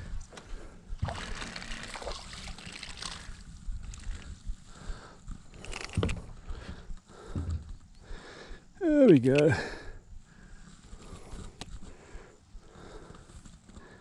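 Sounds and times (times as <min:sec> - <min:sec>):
fish splashing in water: 0:01.0 - 0:04.2.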